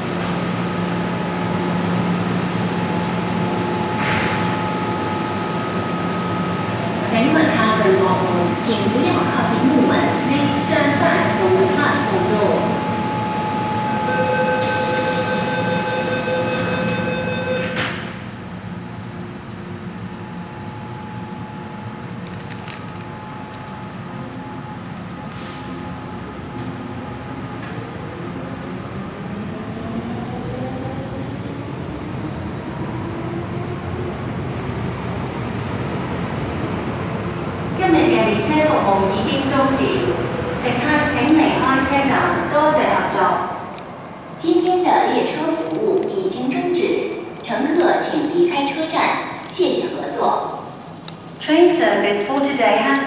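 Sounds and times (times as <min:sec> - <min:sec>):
standing train hum: 0:00.0 - 0:53.0
electric train motors whining: 0:02.6 - 0:17.4
door closing warning beeps: 0:12.6 - 0:18.1.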